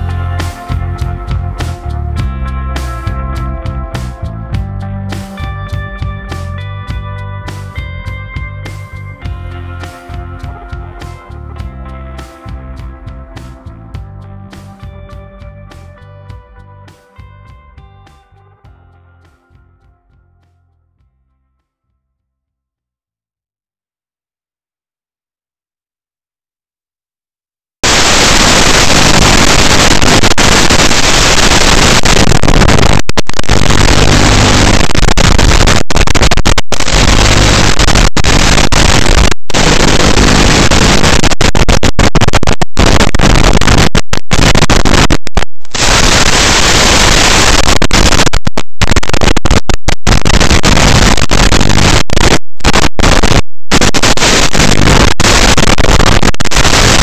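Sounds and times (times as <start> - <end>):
radio static hiss: 0.0 - 2.0, 27.8 - 57.0.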